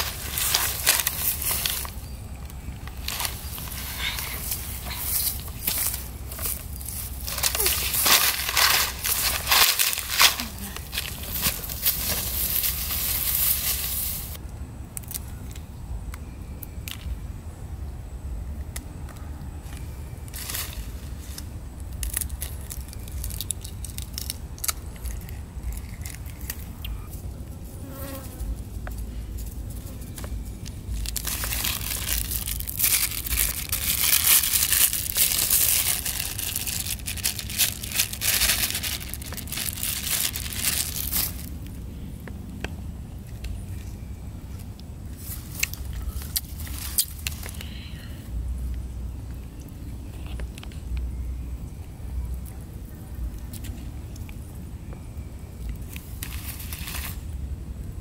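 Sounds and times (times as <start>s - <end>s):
plastic bag crinkling: 0.0s - 2.1s, 2.8s - 14.4s, 30.9s - 41.7s
brush rustling: 0.0s - 14.4s, 28.2s - 41.8s, 45.0s - 47.6s, 55.9s - 57.4s
eggshells cracking: 21.9s - 26.7s.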